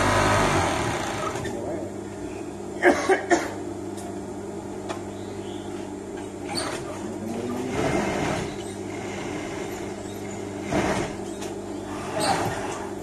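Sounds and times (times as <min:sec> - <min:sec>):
sewing machine motor humming: 0:00.0 - 0:01.4, 0:06.6 - 0:11.2.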